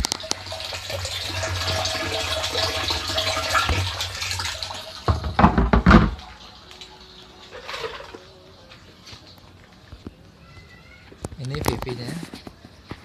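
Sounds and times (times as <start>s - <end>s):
water pouring into plastic tank: 0.0s - 8.3s
plastic lid knocking: 5.1s - 6.2s.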